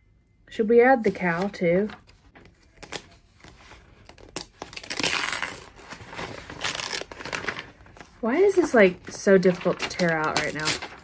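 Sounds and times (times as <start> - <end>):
magazine pages rustling: 1.0 - 11.0
paper tearing: 2.6 - 7.8, 9.5 - 11.0.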